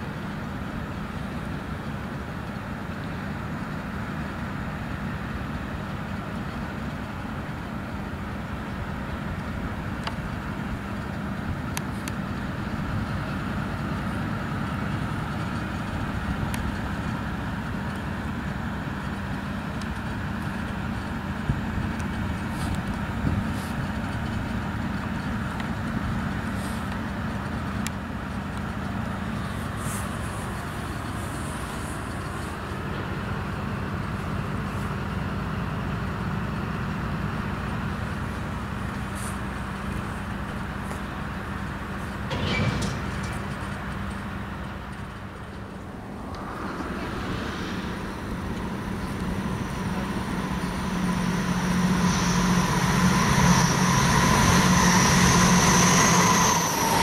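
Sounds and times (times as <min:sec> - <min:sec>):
diesel locomotive engine droning: 0:00.0 - 0:57.0.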